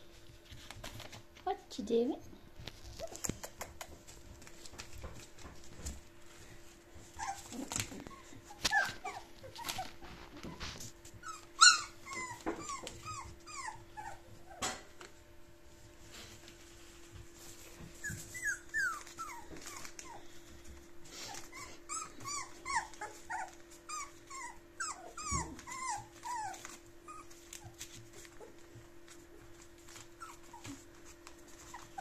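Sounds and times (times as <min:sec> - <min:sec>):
puppies whimpering and yelping: 0:06.4 - 0:14.8, 0:17.6 - 0:32.0.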